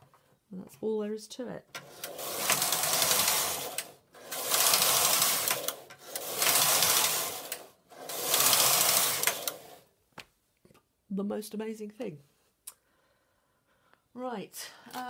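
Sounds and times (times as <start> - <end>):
knitting machine carriage clattering: 1.8 - 9.8.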